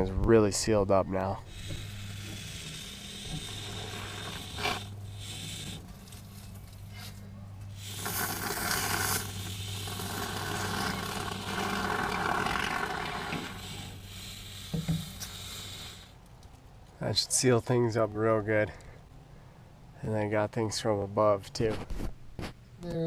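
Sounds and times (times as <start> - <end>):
steady low hum: 0.0 - 22.8
spray foam can hissing: 1.5 - 6.2, 7.8 - 16.2.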